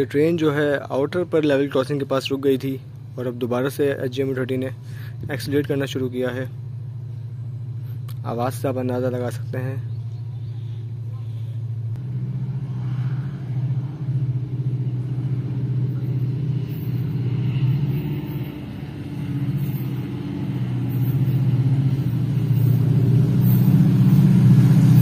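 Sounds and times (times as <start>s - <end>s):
locomotive engine throttling up: 0.0s - 25.0s.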